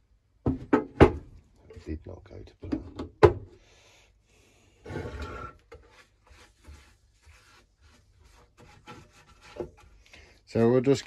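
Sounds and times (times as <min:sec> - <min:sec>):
paint brush scraping on metal: 0:05.0 - 0:09.9.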